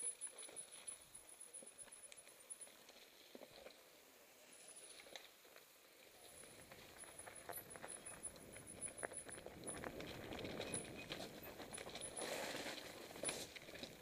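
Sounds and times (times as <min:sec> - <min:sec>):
bike tyres rattling on stones: 0:04.9 - 0:14.0
bike frame and chain rattling: 0:06.3 - 0:14.0.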